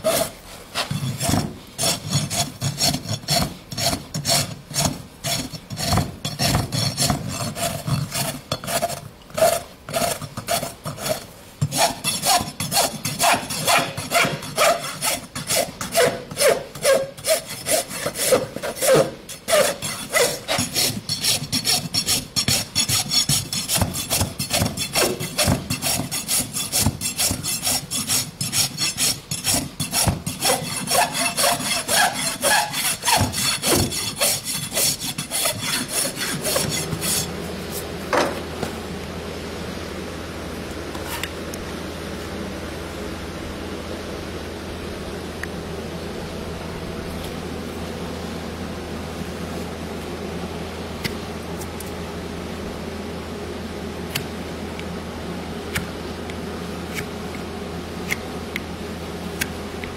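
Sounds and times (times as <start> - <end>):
rasp scraping hoof: 0.0 - 38.3.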